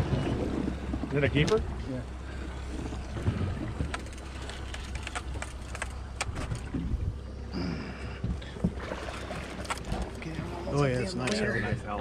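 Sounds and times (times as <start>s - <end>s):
boat motor humming: 0.0s - 12.0s
fishing gear clicking: 3.8s - 6.8s, 9.4s - 10.2s.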